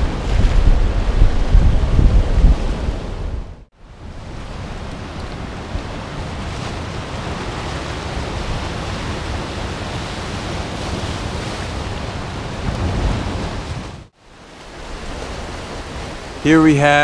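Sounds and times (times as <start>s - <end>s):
ocean surf breaking on rocks: 0.0s - 17.0s
wind on microphone: 0.0s - 17.0s.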